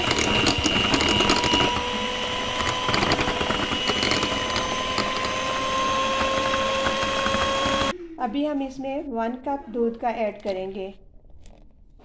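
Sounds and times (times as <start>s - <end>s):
hand mixer motor whine: 0.0s - 7.9s.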